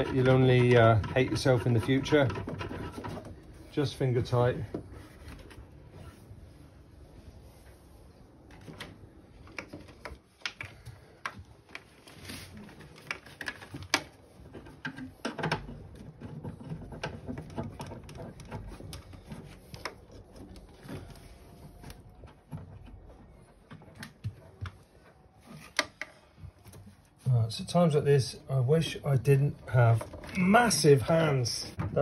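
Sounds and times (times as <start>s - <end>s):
wires clicking and rustling: 0.0s - 4.8s, 8.4s - 27.1s.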